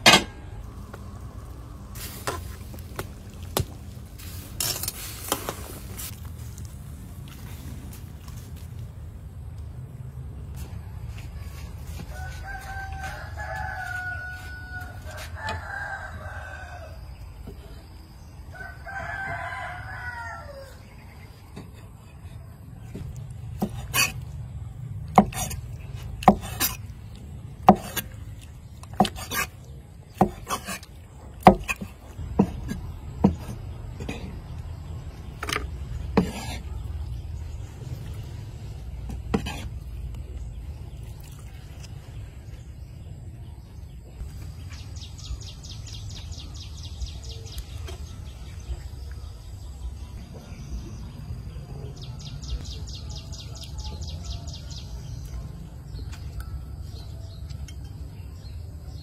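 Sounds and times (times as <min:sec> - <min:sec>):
rooster crowing: 0:12.1 - 0:17.2, 0:18.5 - 0:20.9
cleaver chopping on wooden block: 0:25.1 - 0:25.6, 0:26.2 - 0:26.8, 0:27.6 - 0:28.1, 0:30.2 - 0:30.8, 0:31.4 - 0:33.6.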